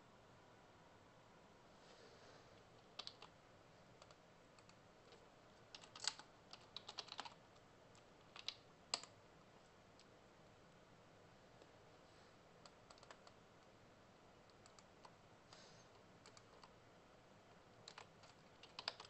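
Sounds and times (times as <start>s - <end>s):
faint room hiss: 0.0s - 19.0s
computer keyboard keystrokes: 2.8s - 3.3s, 4.0s - 7.4s, 8.0s - 9.1s, 12.6s - 13.4s, 14.5s - 15.2s, 16.2s - 16.8s, 17.8s - 19.0s.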